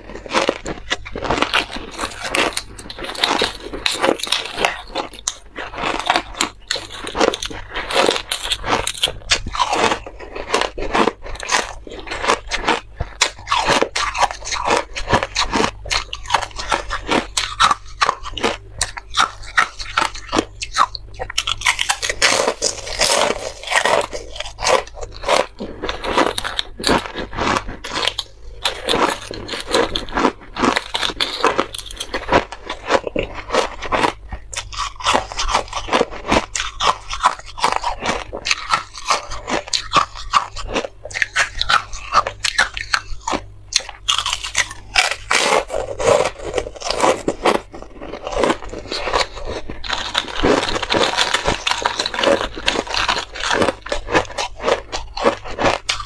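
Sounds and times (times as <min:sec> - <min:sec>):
chewing crunchy ice: 0:00.0 - 0:56.0.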